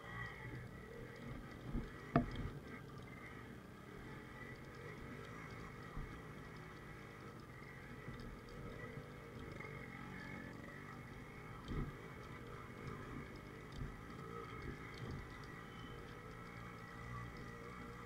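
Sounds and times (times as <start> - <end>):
motorcycle engine running at low speed: 0.0 - 18.0
bike thudding over bumps: 1.3 - 2.6.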